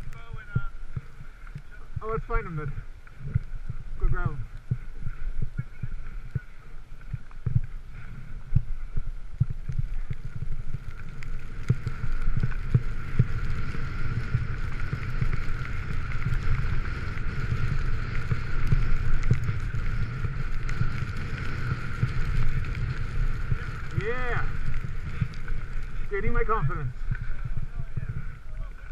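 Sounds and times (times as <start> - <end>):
wind buffeting microphone: 0.0 - 28.9
skis hissing through snow: 11.7 - 26.8.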